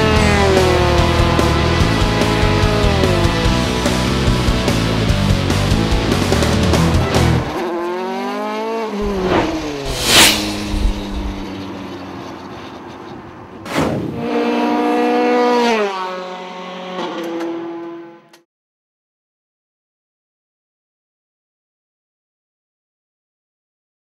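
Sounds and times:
race car engine at speed: 0.0s - 18.4s
whoosh of car passing: 9.0s - 11.9s.

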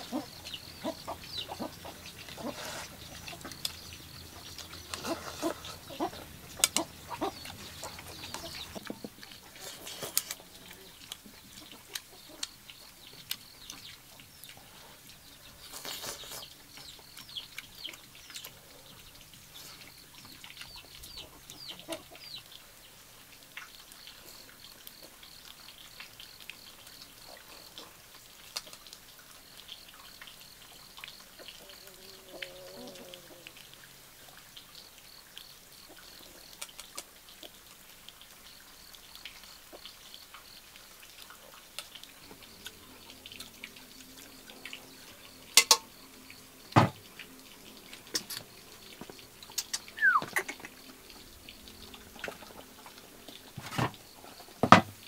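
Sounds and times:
chicken calling: 0.0s - 9.1s, 49.6s - 51.0s
small birds chirping: 0.0s - 54.6s.

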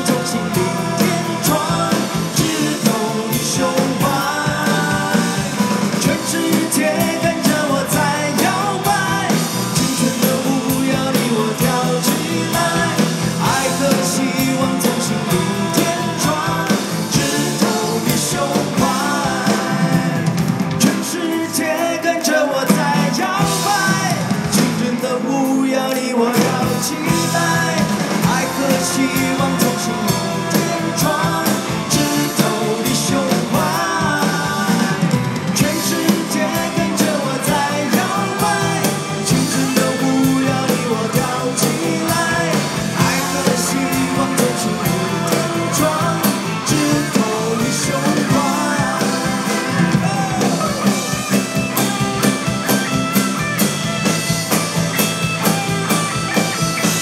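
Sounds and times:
steady drumbeat: 0.0s - 25.6s, 26.3s - 57.0s
live band playing pop: 0.0s - 57.0s
person singing: 0.0s - 57.0s.

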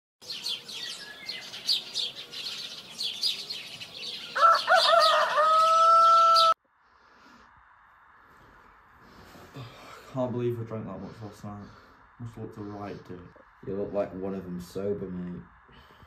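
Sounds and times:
small birds chirping: 0.2s - 6.6s
rooster crowing: 4.2s - 6.6s.

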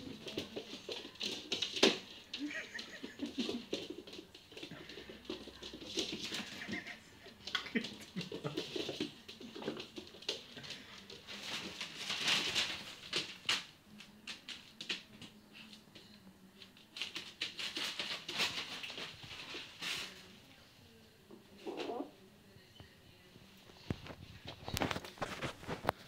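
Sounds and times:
puppy claws pattering on floor: 0.0s - 20.3s, 23.6s - 26.0s.

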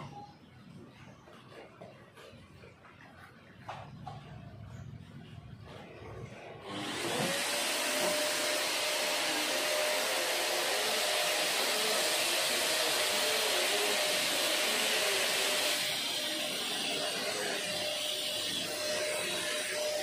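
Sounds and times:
vacuum cleaner motor whine: 6.4s - 20.0s.

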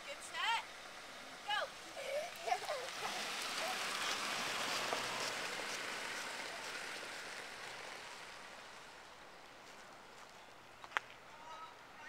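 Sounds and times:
car tyre and road hiss: 0.0s - 12.0s.

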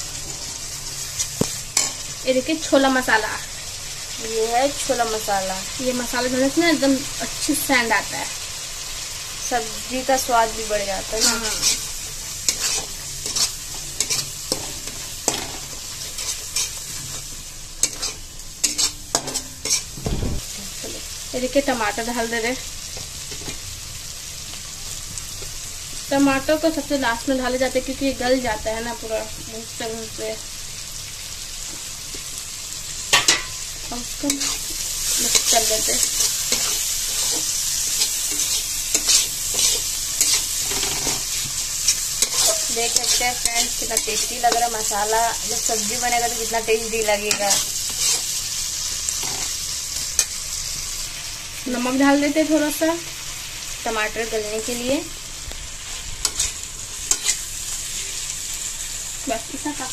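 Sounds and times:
spices sizzling in hot oil: 0.0s - 59.9s
metal spatula scraping pan: 11.1s - 17.1s, 17.8s - 19.9s, 34.3s - 44.9s, 56.2s - 57.4s.

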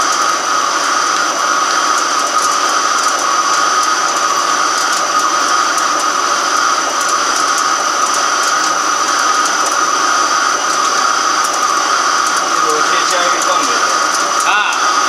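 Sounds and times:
lathe running with high whine: 0.0s - 15.0s.

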